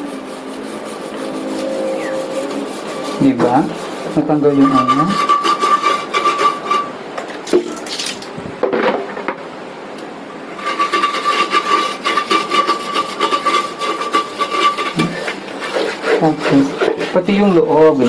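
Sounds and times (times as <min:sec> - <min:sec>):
toilet brush scrubbing bowl: 0:00.0 - 0:07.0, 0:10.6 - 0:18.0.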